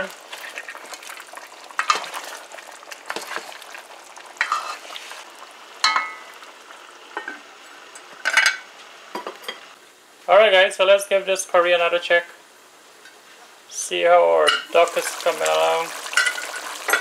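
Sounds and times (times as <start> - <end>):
spatula stirring and scraping: 0.0 - 5.3
meat sizzling in a pot: 0.0 - 9.8, 13.0 - 17.0
metal lid clanking on pot: 5.8 - 6.2, 16.1 - 17.0.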